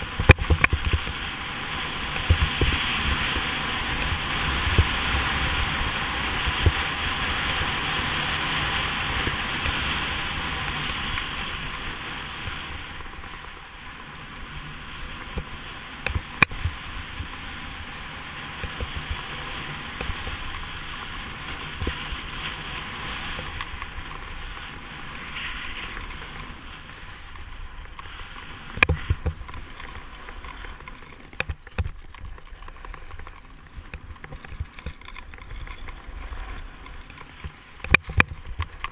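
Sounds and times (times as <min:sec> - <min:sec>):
ski hissing on snow: 0:00.0 - 0:30.8.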